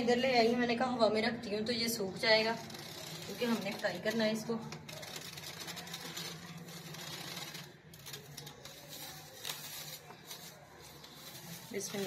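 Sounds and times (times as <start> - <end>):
plastic bag crinkling: 2.6 - 12.0.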